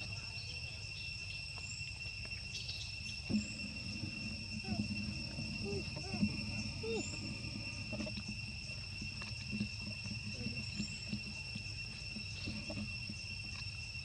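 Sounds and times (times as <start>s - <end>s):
insects trilling: 0.0s - 14.0s
low outdoor rumble: 3.1s - 14.0s.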